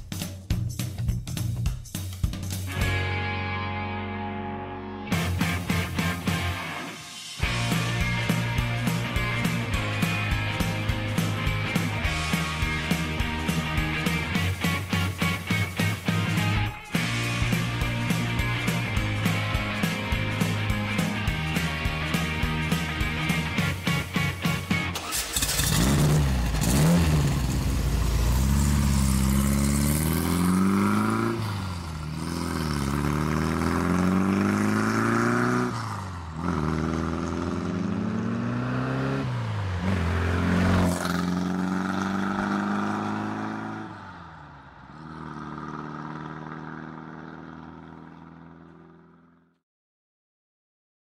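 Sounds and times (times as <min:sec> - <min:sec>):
model truck engine revving: 0:25.0 - 0:39.3.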